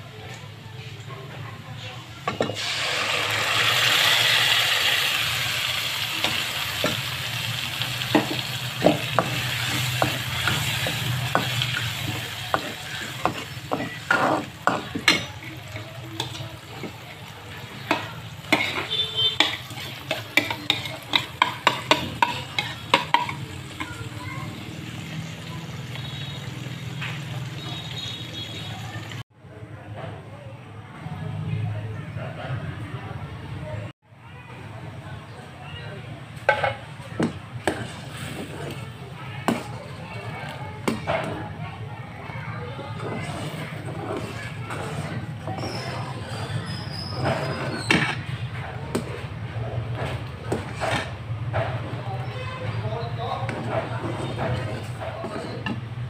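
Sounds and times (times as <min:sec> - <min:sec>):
batter sizzling in hot oil: 0:02.5 - 0:29.2
metal spatula scraping a pan: 0:03.5 - 0:23.9, 0:37.6 - 0:41.6, 0:42.8 - 0:56.0.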